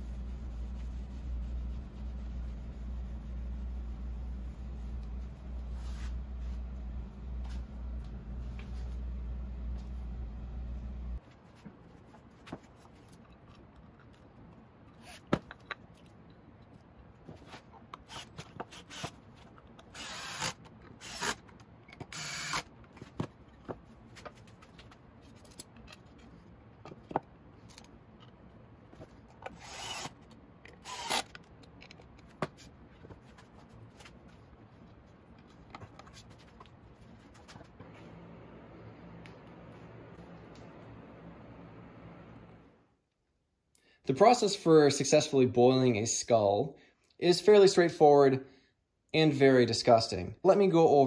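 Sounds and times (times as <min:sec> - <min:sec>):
clicks and knocks of handled parts: 0:22.8 - 0:29.6, 0:30.2 - 0:33.2
cordless screwdriver driving screws: 0:29.5 - 0:30.2, 0:30.8 - 0:31.4.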